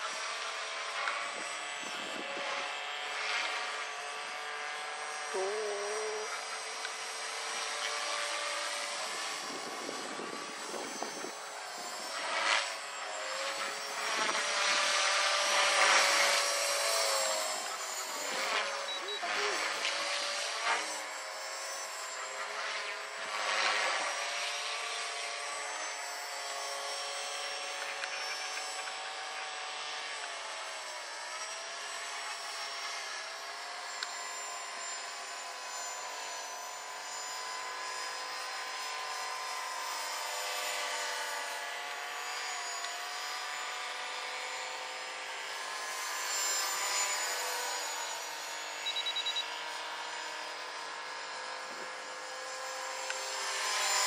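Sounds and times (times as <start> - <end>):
rc helicopter motor whine: 0.0 - 54.0
high beeps: 18.8 - 19.3, 48.8 - 49.4.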